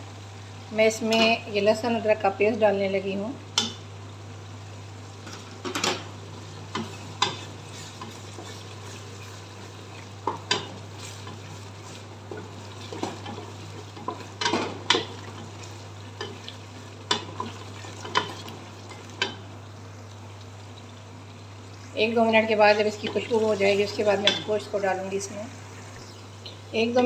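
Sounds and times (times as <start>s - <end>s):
paste sizzling in oil: 5.2s - 22.0s
spatula knocking and scraping pot: 16.2s - 19.4s.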